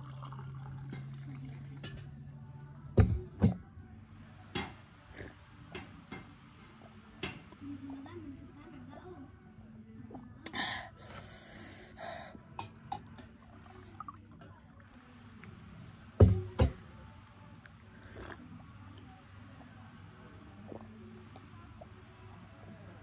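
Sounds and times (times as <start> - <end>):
water trickling from a kettle: 0.0 - 2.1, 12.6 - 17.0
slurping sips from a mug: 5.0 - 5.4, 17.6 - 18.5, 20.5 - 21.9
sharp hissing breaths: 10.5 - 12.4.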